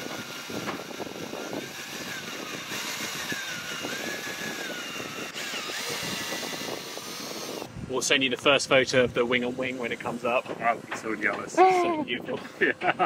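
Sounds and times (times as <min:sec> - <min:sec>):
electric drill boring into wood: 0:00.0 - 0:07.7.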